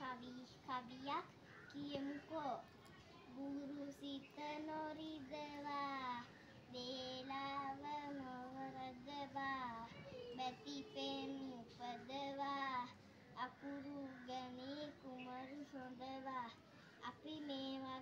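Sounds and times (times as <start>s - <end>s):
boy singing: 0.0s - 2.6s, 3.3s - 18.0s.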